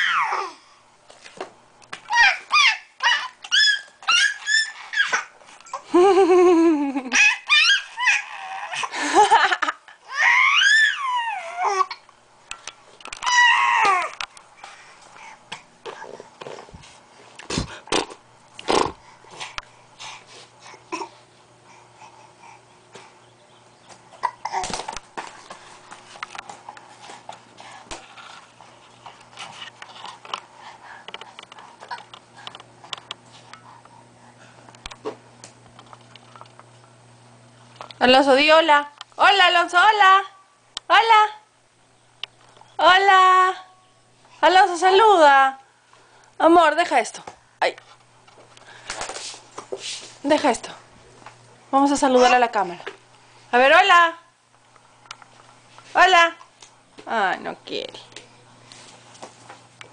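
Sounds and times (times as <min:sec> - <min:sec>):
baby babbling and squealing: 0:00.0 - 0:00.6, 0:02.1 - 0:05.3, 0:10.1 - 0:12.0.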